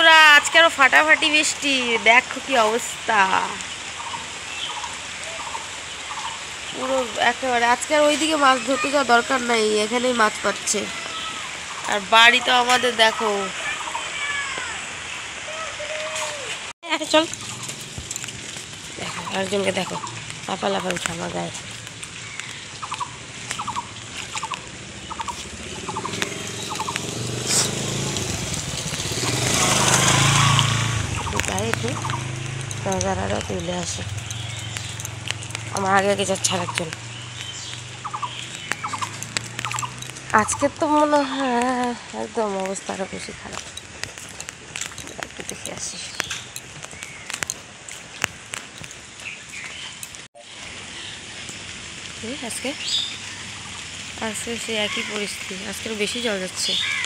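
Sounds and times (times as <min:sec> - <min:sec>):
rain falling: 0:00.0 - 0:57.0
engine low hum: 0:17.1 - 0:41.2
bird chirps: 0:22.2 - 0:27.8, 0:30.2 - 0:40.7
small animal chirping: 0:22.8 - 0:27.8, 0:37.6 - 0:40.6.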